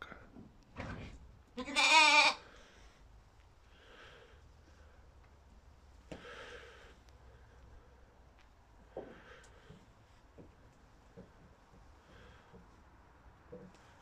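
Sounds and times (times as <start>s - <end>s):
lamb bleating: 1.6s - 2.4s.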